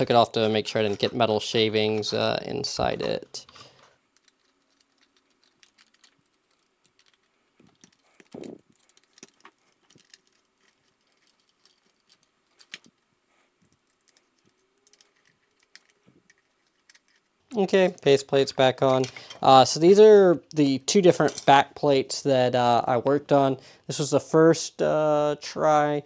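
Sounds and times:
small metal parts clicking: 0:03.0 - 0:13.0, 0:13.6 - 0:17.3.

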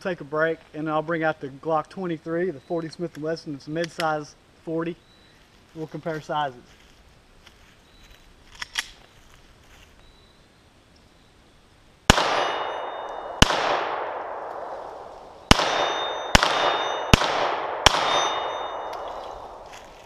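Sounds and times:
pistol shots with echo: 0:12.1 - 0:19.6.

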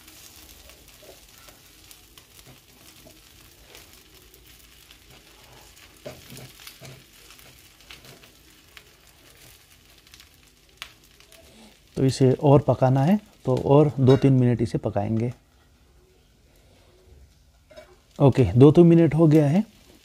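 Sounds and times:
oil sizzling and crackling: 0:00.0 - 0:20.0
metal spatula scraping: 0:05.0 - 0:08.3, 0:17.6 - 0:18.0.

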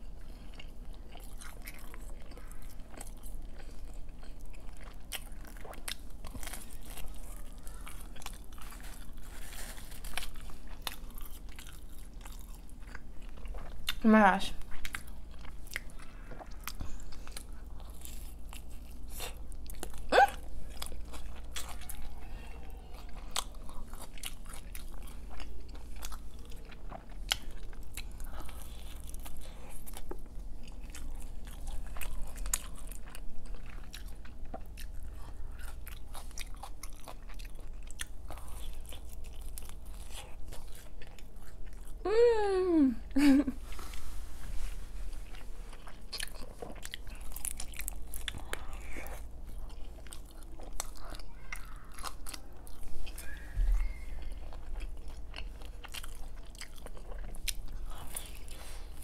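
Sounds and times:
crunchy chewing: 0:00.1 - 0:14.0, 0:14.6 - 0:42.0, 0:44.8 - 0:59.0
person humming: 0:42.0 - 0:43.6.

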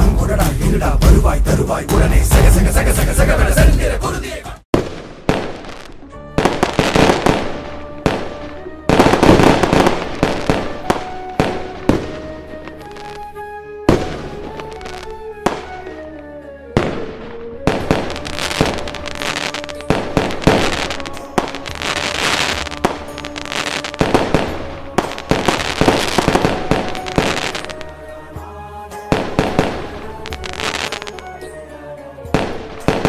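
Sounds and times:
music playing: 0:00.0 - 0:04.7, 0:05.3 - 0:33.0
fireworks bangs and crackling: 0:04.7 - 0:13.3, 0:13.9 - 0:15.7, 0:16.8 - 0:27.8, 0:29.1 - 0:31.2, 0:32.3 - 0:33.0.

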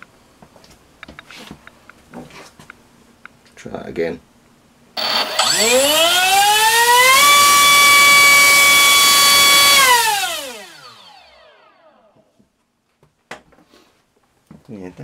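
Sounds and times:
electric motor propeller whine: 0:05.0 - 0:12.2.

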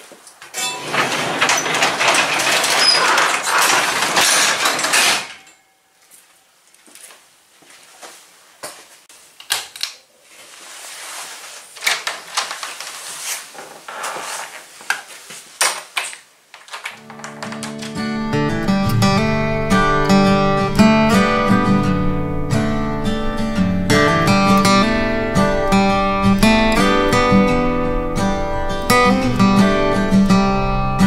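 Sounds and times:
garage door rolling down tracks: 0:00.4 - 0:05.7.

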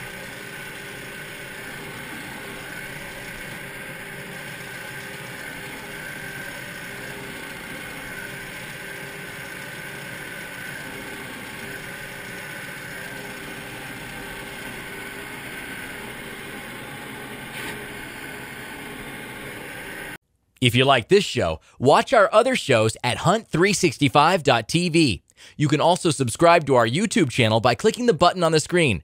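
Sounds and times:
tractor engine running: 0:00.0 - 0:20.2.

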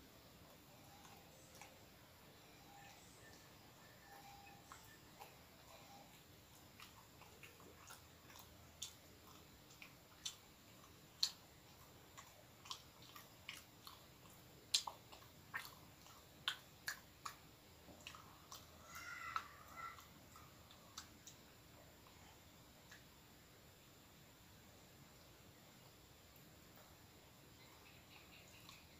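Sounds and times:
chewing bread: 0:00.3 - 0:23.2
wet mouth clicks and smacks: 0:06.8 - 0:18.7.

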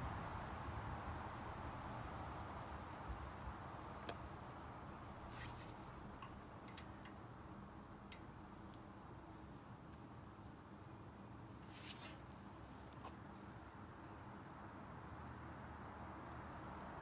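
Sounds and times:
light metallic clicks of lug nuts: 0:05.4 - 0:07.4, 0:08.0 - 0:08.9.

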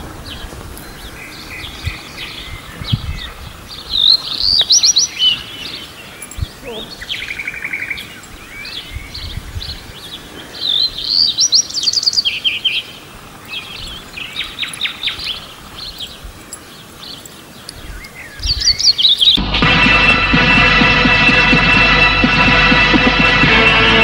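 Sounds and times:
birds chirping: 0:00.0 - 0:19.4
music with throbbing beat: 0:19.4 - 0:24.0.

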